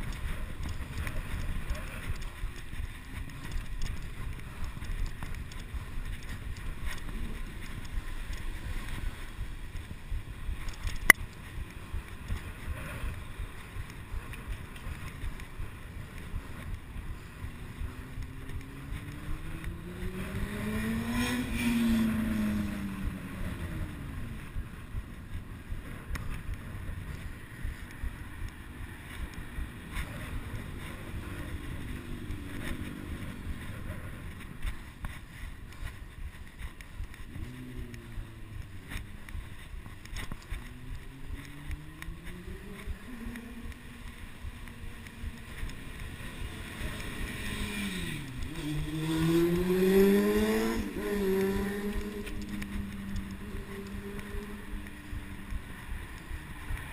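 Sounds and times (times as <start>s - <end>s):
road rumble: 0.0s - 56.9s
car passing by: 45.7s - 54.7s.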